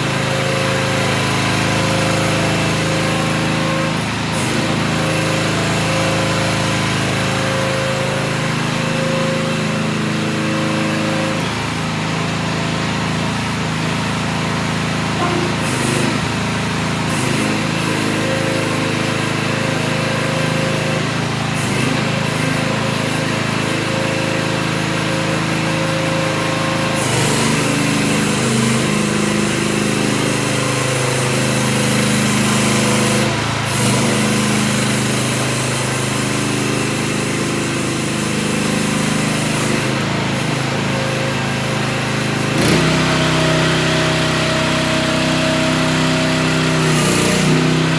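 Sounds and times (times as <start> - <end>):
excavator engine running: 0.0 - 47.9.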